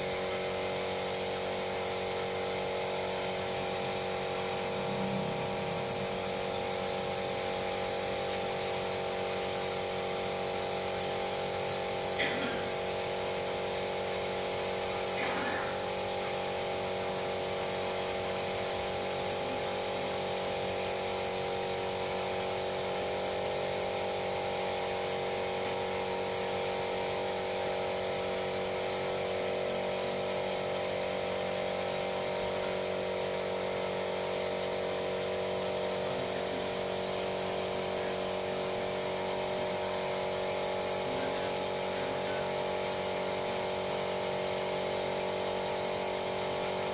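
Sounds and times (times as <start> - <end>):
small electric motor whining: 0.0 - 17.1, 35.7 - 42.6.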